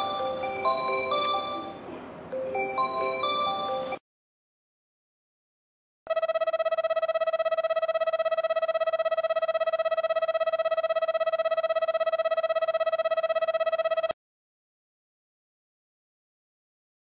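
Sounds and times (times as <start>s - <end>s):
station departure bell ringing: 0.0s - 4.0s.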